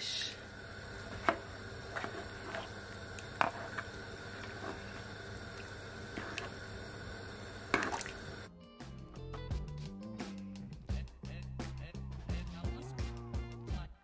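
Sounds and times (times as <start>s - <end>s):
spoon stirring liquid: 1.1s - 6.7s, 7.7s - 8.3s.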